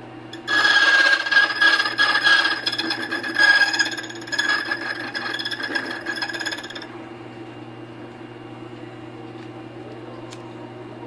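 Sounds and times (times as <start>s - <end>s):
cutter wheel rasping on metal: 0.3s - 6.9s
motor humming: 0.3s - 6.9s.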